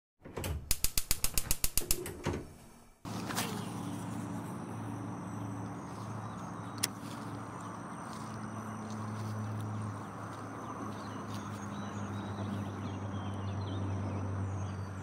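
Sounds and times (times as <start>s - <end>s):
rapid typewriter-like clicks: 0.6s - 2.3s.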